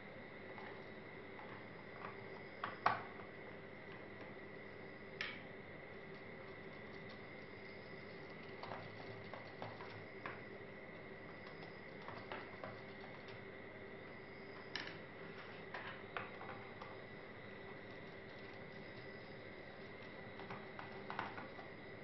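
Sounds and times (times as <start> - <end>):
faint hum: 0.0 - 22.0.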